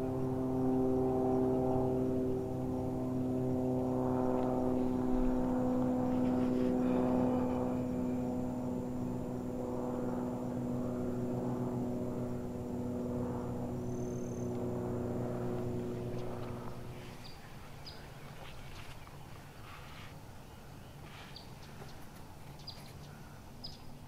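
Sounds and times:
distant propeller engine drone: 0.0s - 24.0s.

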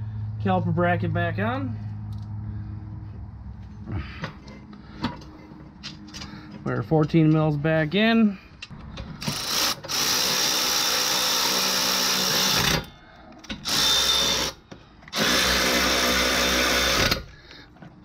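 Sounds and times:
electric ratchet running: 9.2s - 12.9s, 13.5s - 17.3s.

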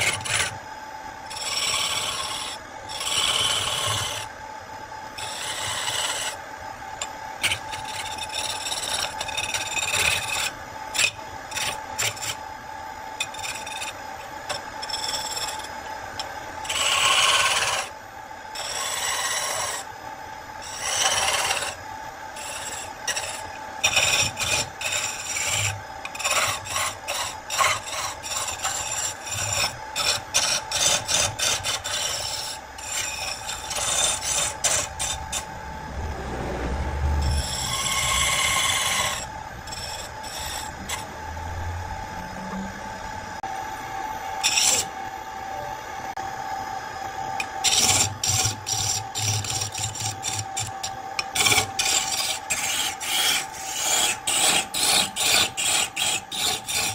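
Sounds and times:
gouge scraping spinning wood: 0.0s - 19.9s, 20.6s - 43.3s, 44.4s - 45.0s, 47.3s - 56.9s
lathe whine: 0.0s - 56.9s.

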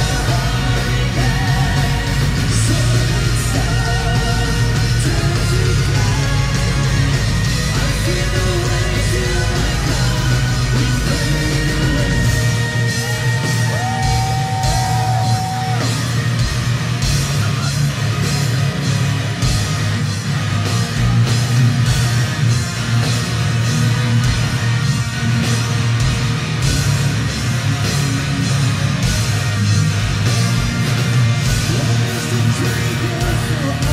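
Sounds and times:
person singing: 0.0s - 14.2s, 31.7s - 33.9s
metal band playing: 0.0s - 33.9s.

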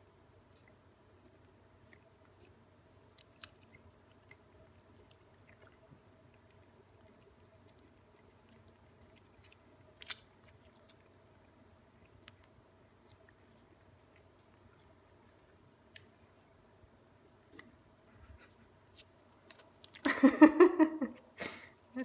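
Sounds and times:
cats lapping and tongue clicks: 0.5s - 16.4s.

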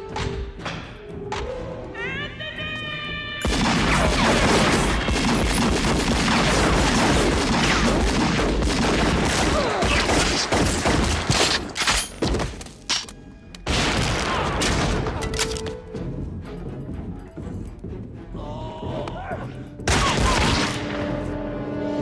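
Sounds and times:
heavy gunfire: 3.5s - 11.6s.

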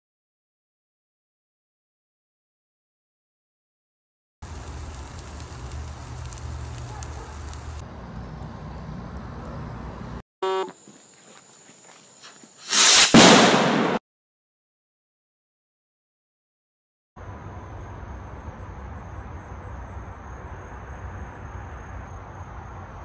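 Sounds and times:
fire rumbling in burn barrel: 4.4s - 9.4s
fire crackles: 4.4s - 9.6s
loud explosive burst: 12.9s - 14.0s.

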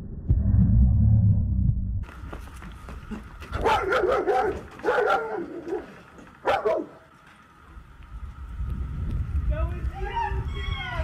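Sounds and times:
low rumble: 0.0s - 2.2s, 7.7s - 11.0s.

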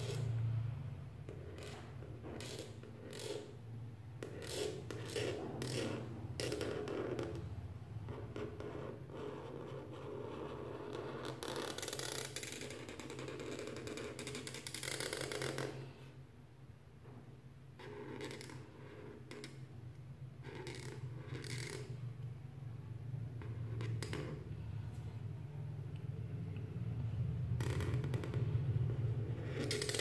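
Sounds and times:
marker scratching across paper: 0.0s - 0.3s, 1.2s - 3.6s, 4.2s - 7.5s, 8.1s - 16.1s, 17.8s - 19.7s, 20.4s - 22.0s, 23.4s - 24.4s, 27.5s - 30.0s.

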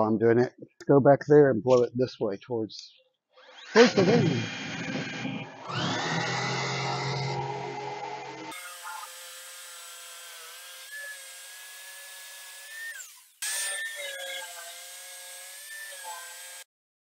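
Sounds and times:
jigsaw cutting plywood: 3.4s - 16.7s.

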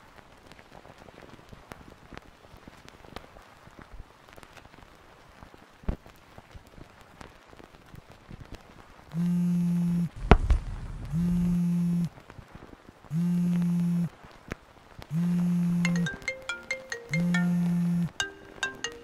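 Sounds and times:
faint crackle and clicks: 0.0s - 19.0s
pulsing low electronic buzz: 9.2s - 12.1s, 13.1s - 14.1s, 15.1s - 15.9s
sharp thump with low rumble: 10.2s - 11.6s.

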